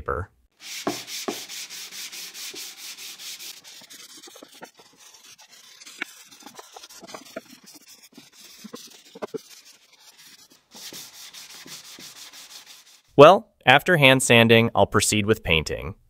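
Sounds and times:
sandpaper rubbing on wood: 0.6s - 13.1s.

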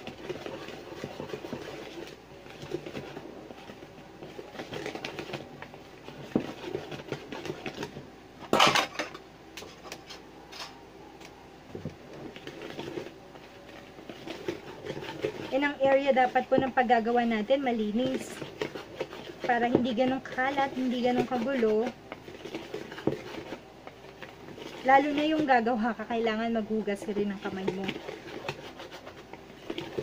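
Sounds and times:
wire whisk scraping plastic bowl: 0.0s - 8.0s, 12.1s - 30.0s
whisk clattering: 18.0s - 25.5s.

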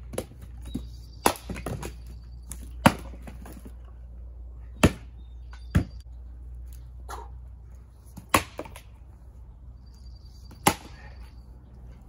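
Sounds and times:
axe splitting wood: 1.2s - 3.6s, 8.2s - 8.9s, 10.6s - 11.1s.

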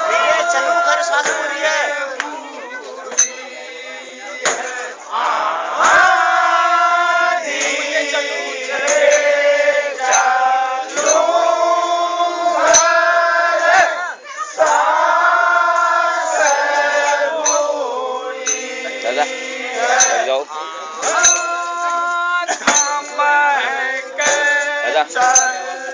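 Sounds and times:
men singing in chorus: 0.0s - 25.9s
metallic clink: 3.1s - 3.6s, 8.7s - 11.6s, 12.6s - 13.1s, 16.4s - 18.9s, 19.8s - 20.3s, 21.0s - 23.3s, 24.2s - 25.9s.

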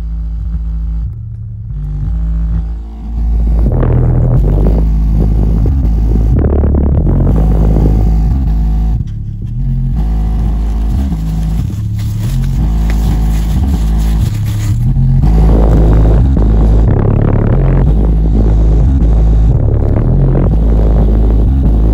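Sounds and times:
loud bassline from woofer: 0.0s - 21.9s
cardboard box buzzing: 2.1s - 18.7s.

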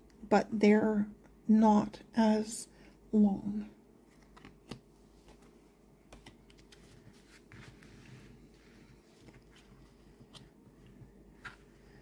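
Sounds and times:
cards tapping and rustling: 4.1s - 7.9s.

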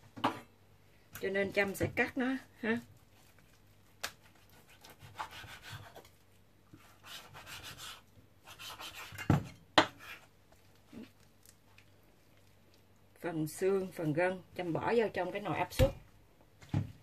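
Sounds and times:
knife scraping meat on board: 4.2s - 6.1s, 6.8s - 10.3s.

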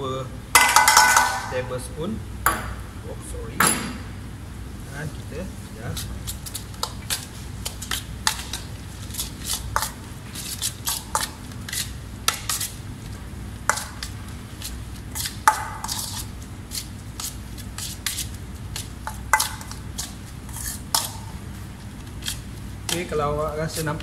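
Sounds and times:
utensil clinking against bowl: 18.8s - 21.3s.

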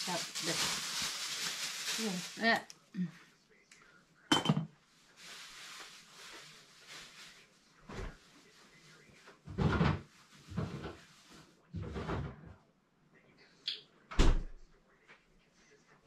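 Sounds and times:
soft hiss: 4.8s - 9.1s.

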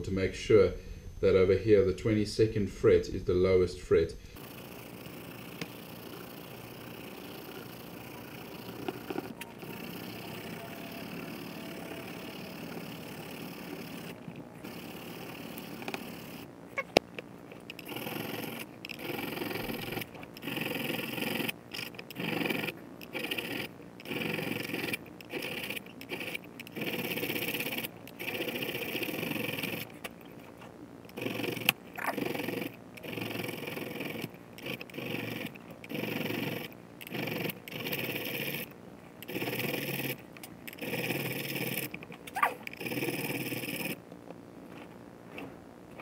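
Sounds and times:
file scraping metal frets: 6.1s - 17.0s.

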